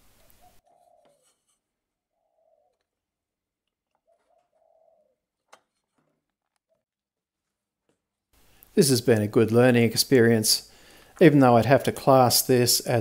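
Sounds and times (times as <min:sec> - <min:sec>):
dove cooing: 0:00.3 - 0:01.4, 0:02.1 - 0:02.9, 0:03.9 - 0:05.4.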